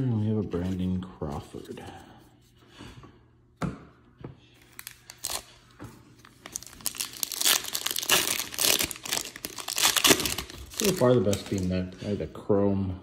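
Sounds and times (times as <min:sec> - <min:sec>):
foil wrapper tearing and crinkling: 0:04.8 - 0:05.5, 0:06.4 - 0:11.8.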